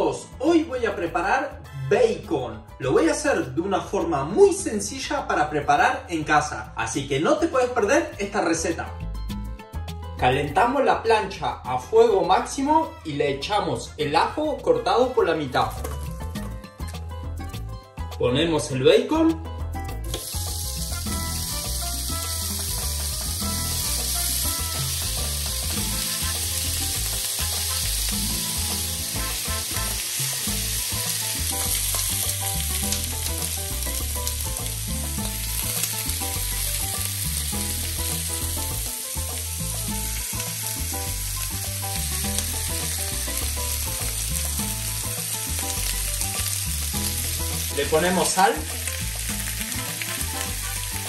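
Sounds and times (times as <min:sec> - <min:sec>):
bacon sizzling on a grill pan: 0:20.1 - 0:51.0.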